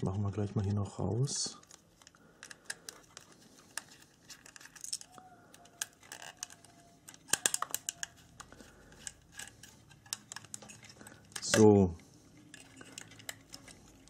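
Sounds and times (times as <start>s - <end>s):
screwdriver and screws clicking: 2.0s - 11.7s.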